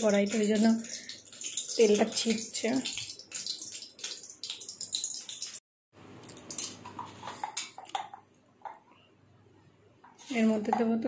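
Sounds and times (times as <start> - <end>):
hot oil spitting and crackling: 0.0 - 5.6, 6.3 - 8.2.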